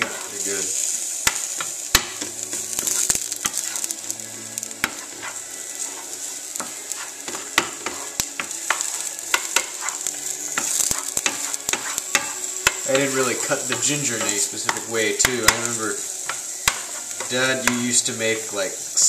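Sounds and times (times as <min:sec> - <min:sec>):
carrots sizzling in frying pan: 0:00.0 - 0:19.0
utensil tapping against pan: 0:14.7 - 0:16.9.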